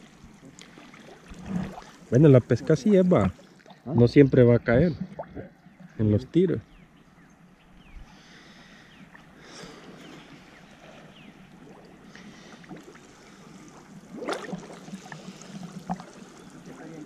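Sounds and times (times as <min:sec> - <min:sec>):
water sloshing and splashing: 0:00.0 - 0:05.9, 0:08.8 - 0:17.0
loud splash: 0:14.1 - 0:14.9.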